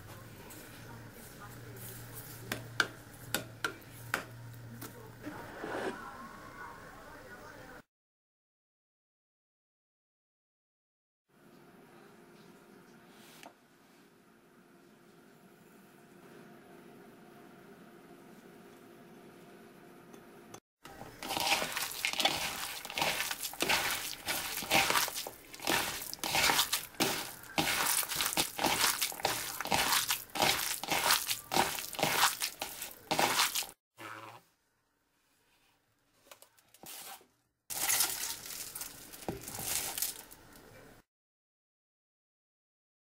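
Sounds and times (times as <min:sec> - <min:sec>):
hand squeezing wet meat filling: 0:20.9 - 0:33.8.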